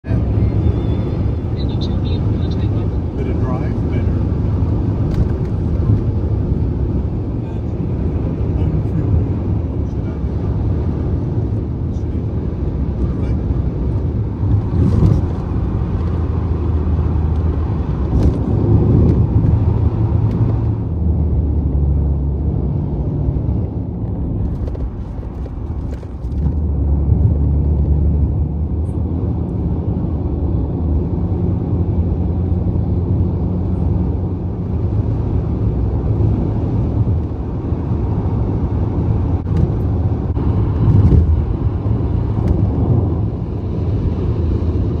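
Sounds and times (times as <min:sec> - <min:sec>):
car tyre and engine rumble: 0:00.0 - 0:45.0.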